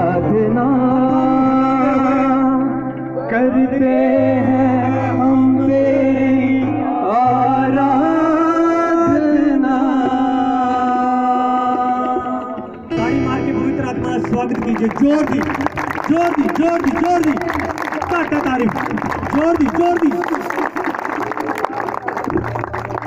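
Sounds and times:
man singing into microphone: 0.0 - 14.6
sustained bass accompaniment: 0.0 - 19.5.

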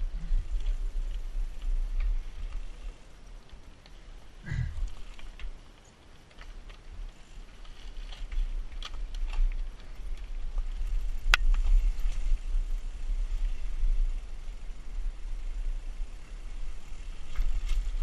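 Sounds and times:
bike rattling: 0.0 - 18.0
tyres clicking over stones: 2.8 - 11.8.

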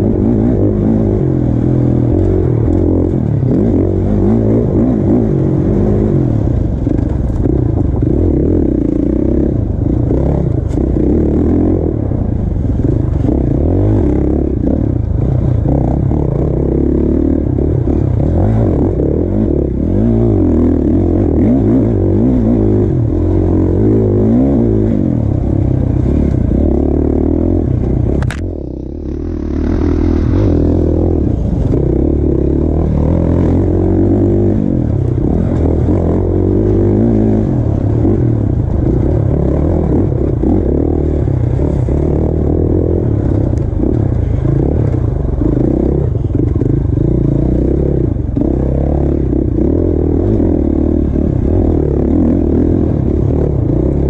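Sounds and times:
dirt bike engine revving: 0.0 - 54.0
sharp click: 28.2 - 28.5.

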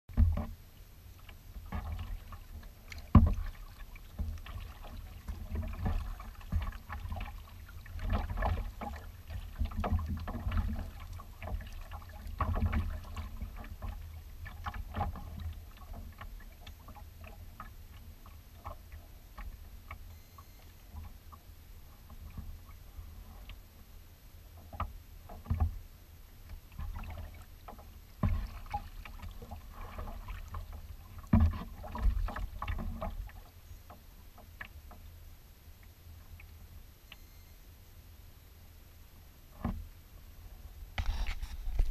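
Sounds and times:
water lapping against kayak hull: 0.1 - 37.2, 39.3 - 41.9.

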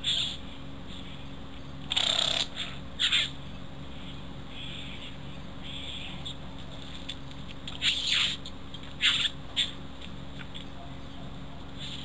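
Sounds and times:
bird giving scratchy calls: 1.8 - 3.4, 7.1 - 9.8.

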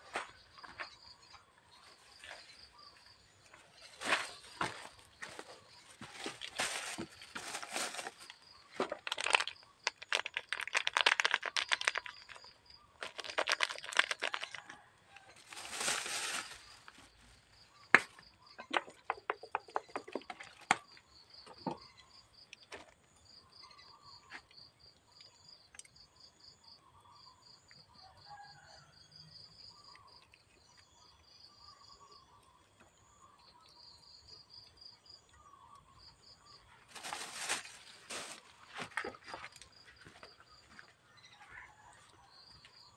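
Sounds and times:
rustling shaking of seasoning: 13.0 - 14.6.

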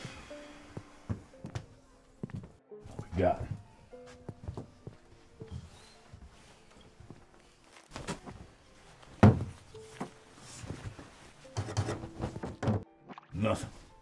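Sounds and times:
objects thumping and knocking: 9.2 - 10.1, 11.6 - 12.9.

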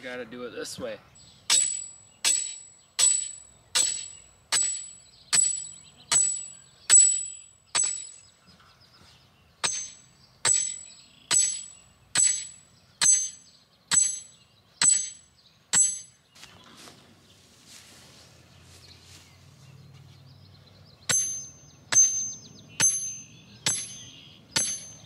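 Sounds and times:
sledgehammer clanging on steel post: 1.5 - 8.2, 9.6 - 16.2, 21.1 - 25.0.

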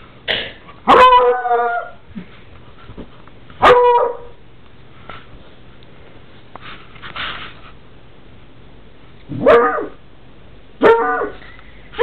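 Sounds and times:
dog howling: 0.9 - 2.0, 9.3 - 10.0, 10.8 - 11.4.

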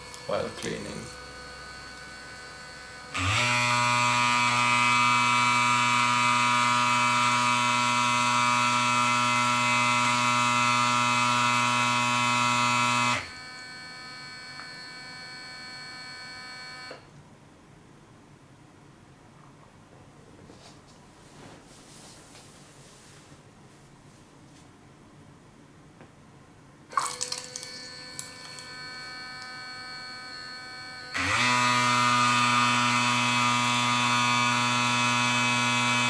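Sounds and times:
electric shaver buzzing: 0.0 - 17.0, 26.9 - 36.0.

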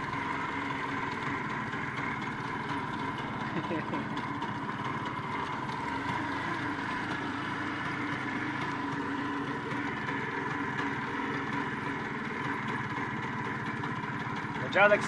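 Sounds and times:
small vehicle engine running: 0.0 - 15.0
steady whine: 0.0 - 15.0.

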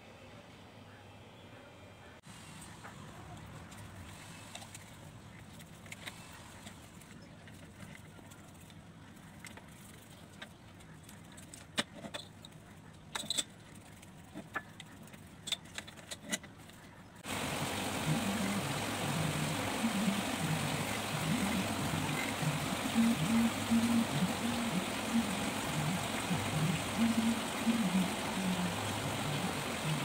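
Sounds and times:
hiss with wavering low tones: 17.3 - 30.0.

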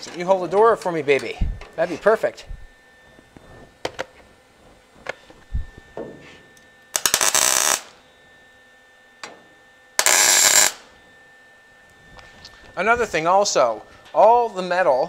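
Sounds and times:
welding arc crackle: 6.9 - 8.0, 10.0 - 10.9.

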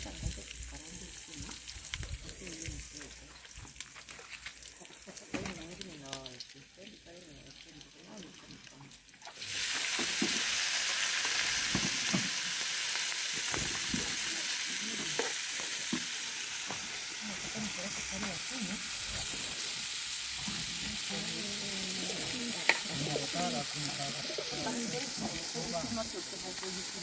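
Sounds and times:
vegetables sizzling in oil: 0.0 - 27.0.

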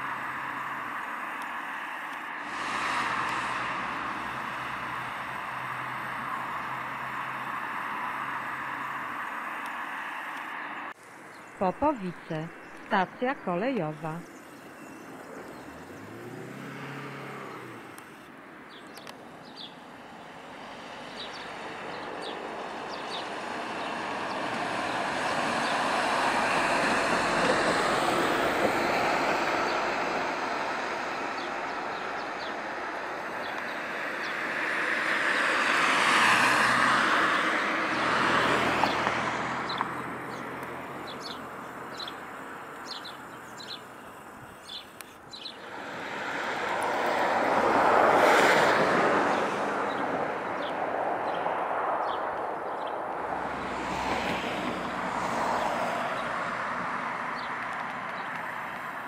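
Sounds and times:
cars driving past: 0.0 - 59.0
birds chirping: 10.4 - 24.6, 31.1 - 34.6, 35.2 - 45.7, 49.3 - 53.0, 57.3 - 59.0.

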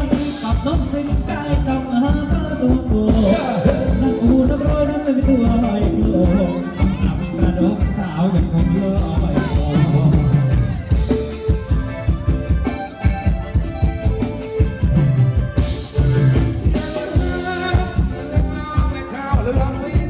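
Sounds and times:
person singing: 0.0 - 11.2, 16.0 - 20.0
drum kit beat: 0.0 - 20.0
live band playing dance music: 0.0 - 20.0.

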